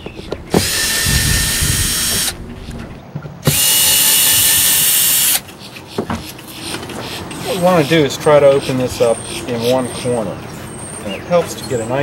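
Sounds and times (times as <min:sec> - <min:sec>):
cordless drill whining: 0:00.5 - 0:02.4, 0:03.4 - 0:05.4.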